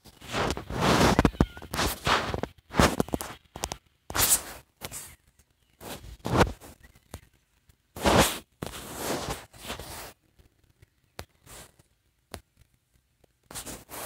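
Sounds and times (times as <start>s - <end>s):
short rustling: 0.0s - 3.4s, 8.0s - 10.2s.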